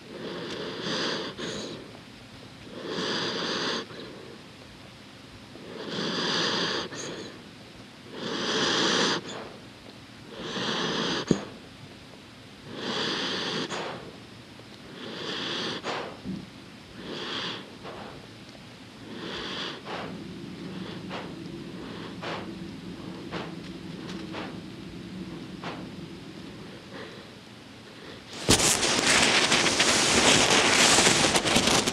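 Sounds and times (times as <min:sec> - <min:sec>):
dog breathing through nose: 0:00.1 - 0:01.8, 0:02.7 - 0:04.3, 0:05.6 - 0:07.4, 0:08.1 - 0:09.6, 0:10.3 - 0:11.6, 0:12.6 - 0:14.2, 0:14.9 - 0:16.2, 0:16.9 - 0:18.3, 0:19.0 - 0:27.3.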